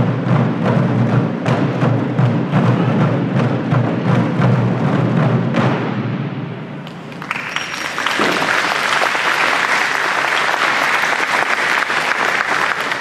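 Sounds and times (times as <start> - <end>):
taiko drum strokes: 0.0 - 7.1
audience applause: 7.0 - 13.0.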